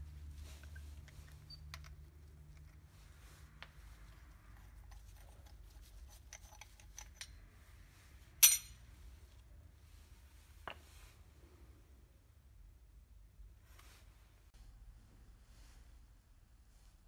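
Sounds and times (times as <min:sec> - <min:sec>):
ringing metallic clink: 0:08.4 - 0:08.8.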